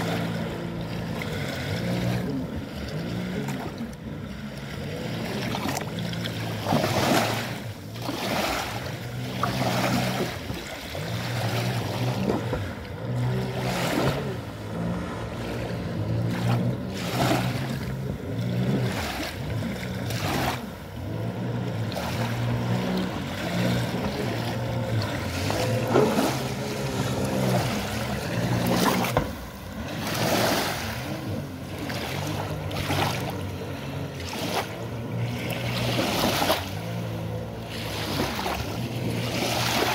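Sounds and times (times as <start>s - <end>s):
jet ski engine running: 0.0s - 39.9s
rushes of noise: 0.0s - 39.9s.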